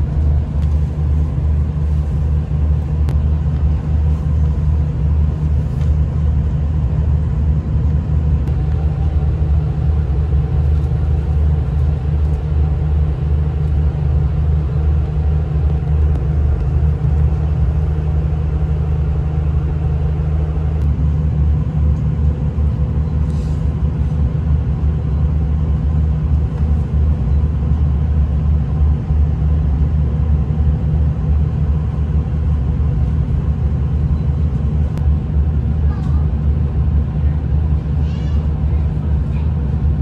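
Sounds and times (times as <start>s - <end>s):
train engine drone and rumble: 0.0s - 40.0s.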